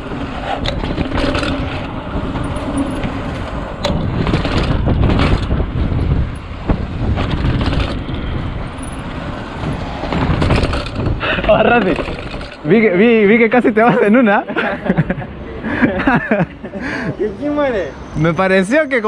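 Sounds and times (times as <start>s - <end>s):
mountain bike rattling down stairs: 0.0s - 3.2s, 3.8s - 9.0s, 9.6s - 13.1s
sharp knocks: 9.6s - 12.6s.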